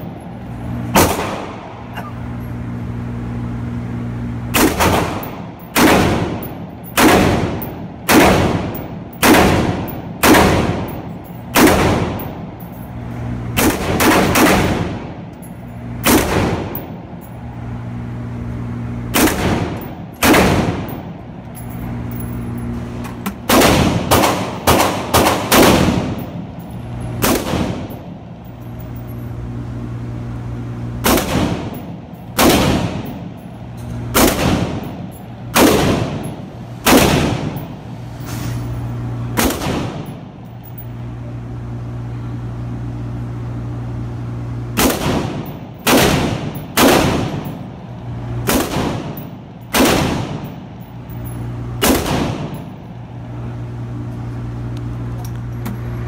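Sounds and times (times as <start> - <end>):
rifle shots ringing indoors: 0.0 - 1.9, 3.7 - 17.3, 18.3 - 22.8, 23.4 - 37.9, 39.3 - 40.9, 44.7 - 53.0
steady low hum: 0.0 - 56.0.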